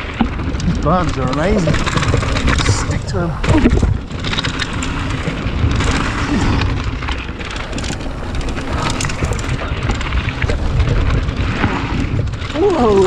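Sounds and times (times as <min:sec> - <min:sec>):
bike clicks and rattles: 0:00.0 - 0:13.0
tyres crunching over stones: 0:00.0 - 0:13.0
wind rumbling on microphone: 0:00.0 - 0:13.0.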